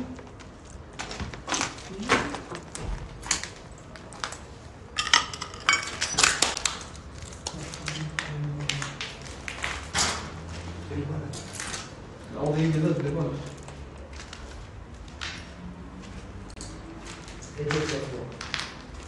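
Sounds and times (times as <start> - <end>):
footsteps on gritty concrete: 12.5 - 19.0.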